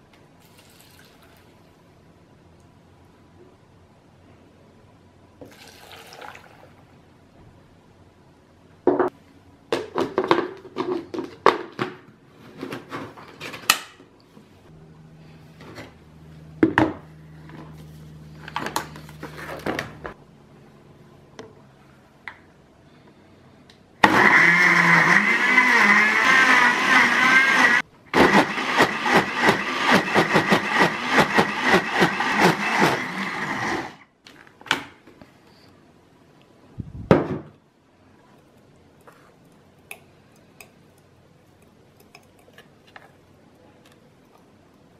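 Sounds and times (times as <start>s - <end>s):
blender motor running: 24.0s - 34.0s.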